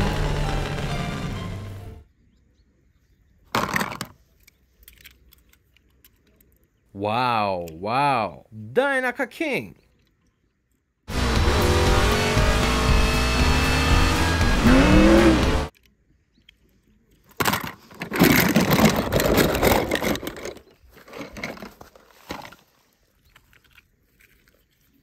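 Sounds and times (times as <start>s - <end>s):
car sounds: 0.0s - 2.0s, 11.1s - 15.7s
film music: 0.0s - 2.0s, 11.1s - 15.7s.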